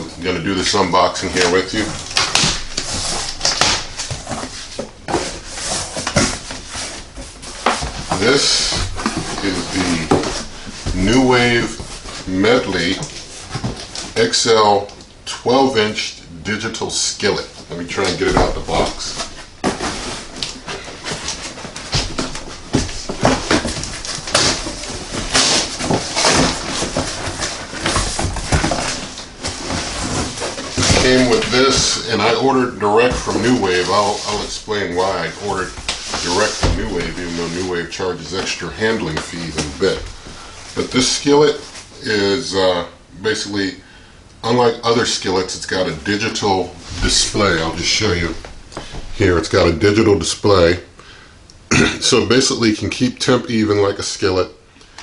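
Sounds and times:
cardboard flaps rustling: 0.1 - 15.0, 17.3 - 42.2
packing tape tearing: 1.4 - 4.5, 23.2 - 31.9.

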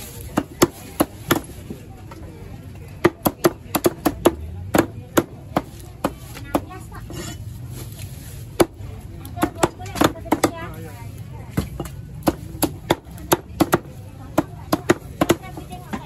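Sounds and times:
cleavers chopping on wooden blocks: 0.2 - 1.5, 3.0 - 6.7, 8.6 - 10.7, 11.5 - 16.0.

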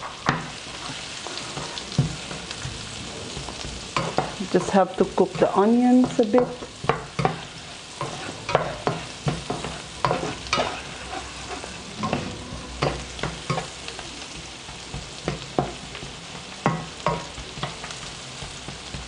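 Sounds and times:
onions sizzling in oil: 0.0 - 19.0
spatula scraping and tapping pan: 0.0 - 19.0.

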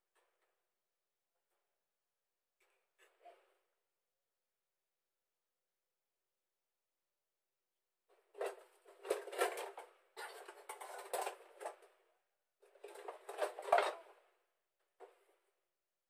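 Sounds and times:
pots and containers clattering: 8.3 - 11.8, 12.6 - 14.2.

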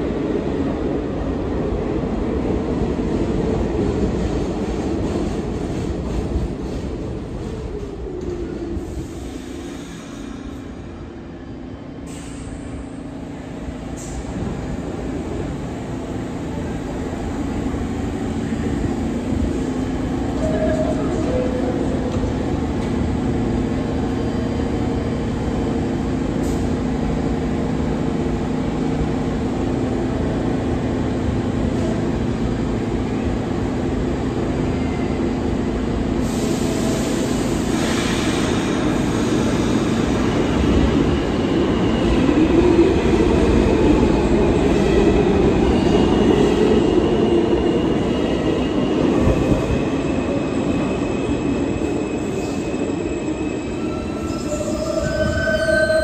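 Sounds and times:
train rumbling: 0.0 - 11.1
subway train equipment hum: 0.0 - 56.0.

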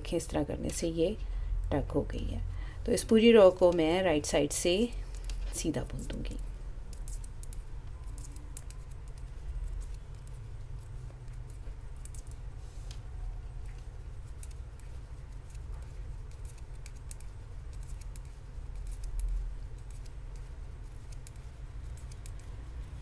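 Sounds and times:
steady low hum: 0.0 - 23.0
knitting needles clicking: 4.7 - 23.0.

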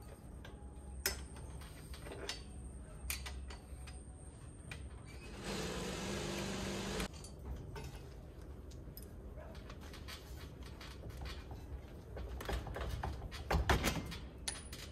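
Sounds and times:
small motor running: 5.4 - 7.1.

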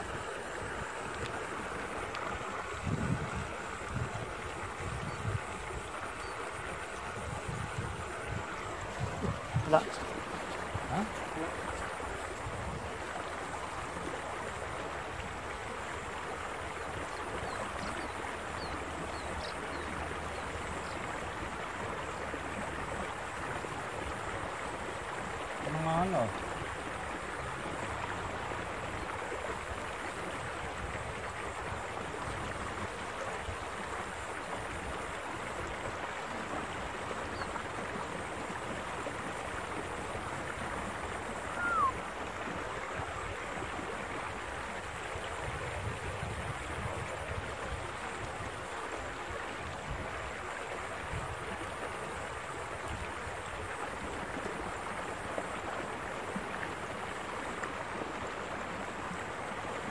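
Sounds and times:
water rushing along a channel: 0.0 - 59.9
short falling whistle-like note: 41.5 - 42.0.

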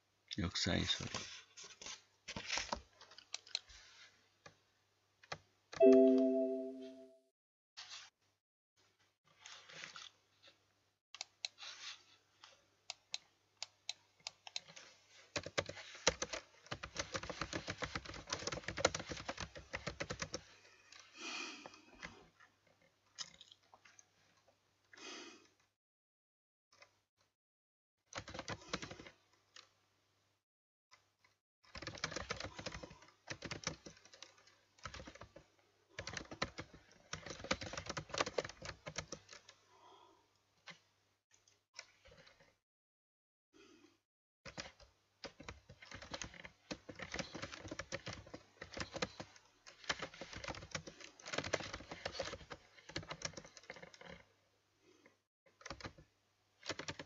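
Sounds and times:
typing on keyboard: 13.6 - 20.5, 28.2 - 29.7, 31.7 - 35.4, 36.0 - 39.5, 44.5 - 54.2, 55.5 - 56.0, 56.6 - 57.0.

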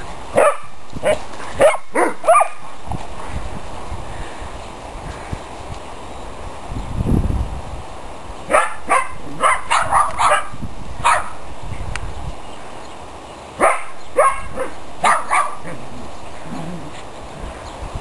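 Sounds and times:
dogs barking: 0.4 - 2.6, 8.5 - 11.4, 13.6 - 15.9.

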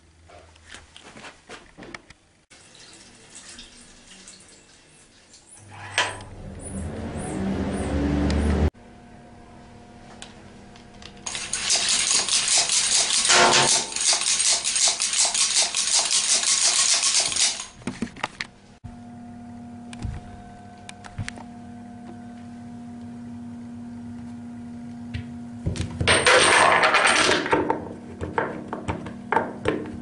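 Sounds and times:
hard objects clattering: 26.0 - 29.8.

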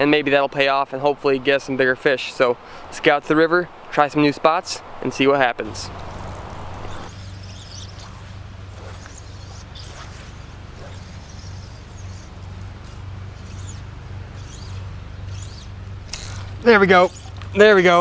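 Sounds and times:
steady low hum: 4.8 - 18.0
fly line swishing: 5.9 - 17.6.

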